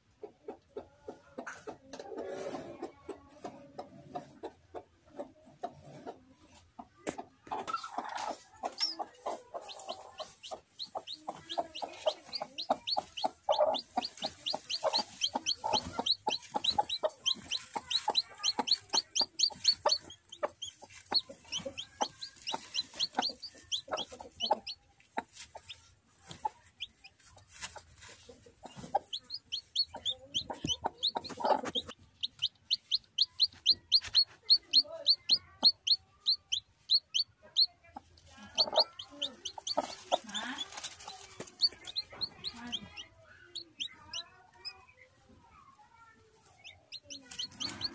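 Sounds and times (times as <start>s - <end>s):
chicks peeping: 0.2s - 47.9s
hen clucking low: 7.5s - 24.8s, 28.9s - 40.8s.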